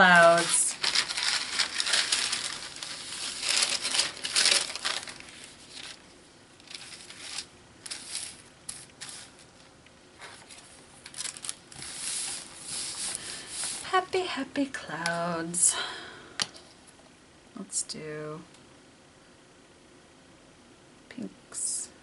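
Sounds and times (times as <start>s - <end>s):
paper page folding: 0.0s - 13.8s
wax paper crinkling: 0.0s - 14.0s.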